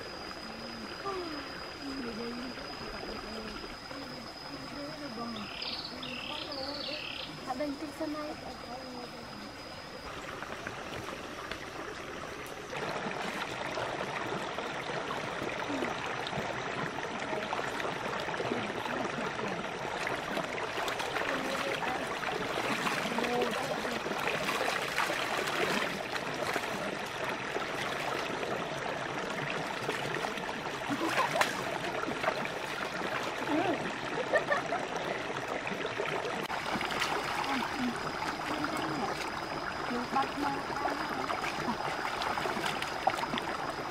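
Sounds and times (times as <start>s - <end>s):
rocky stream running: 0.0s - 43.9s
hands splashing water: 20.0s - 27.0s, 29.8s - 33.8s, 36.5s - 43.9s.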